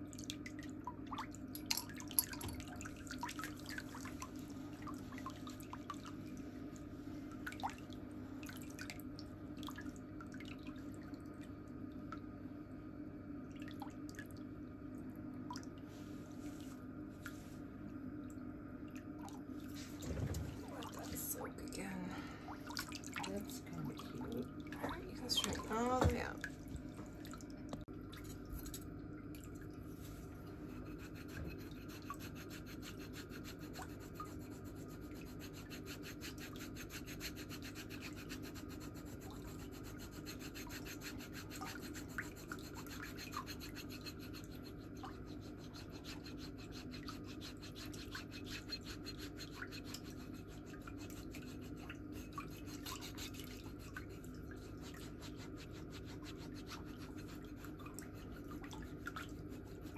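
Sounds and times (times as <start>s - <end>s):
metal foot file rasping skin: 30.8s - 54.0s, 54.9s - 57.6s.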